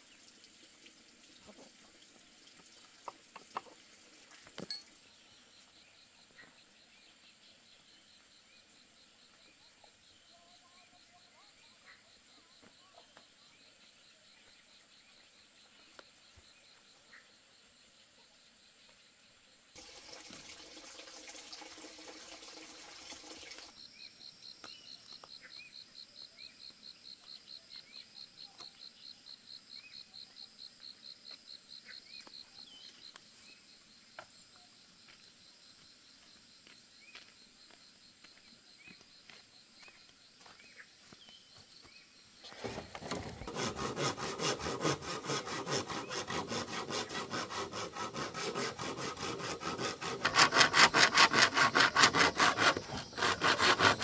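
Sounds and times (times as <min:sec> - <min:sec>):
hand saw cutting bamboo: 0:42.6 - 0:54.0.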